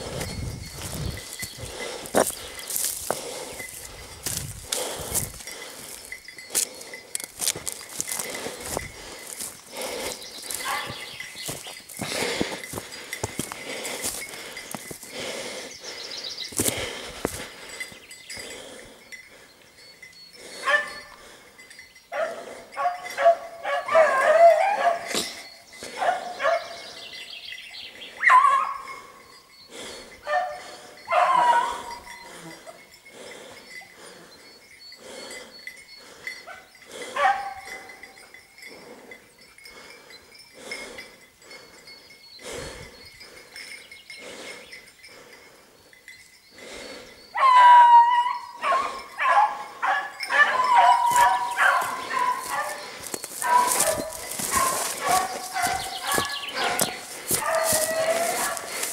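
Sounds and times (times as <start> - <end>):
dog baying: 22.2 - 26.8, 30.3 - 32.4, 47.4 - 58.9.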